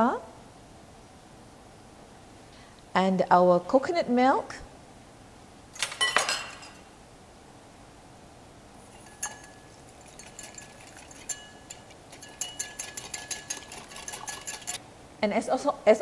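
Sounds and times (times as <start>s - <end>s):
whisk clinking in glass bowl: 8.9s - 14.8s.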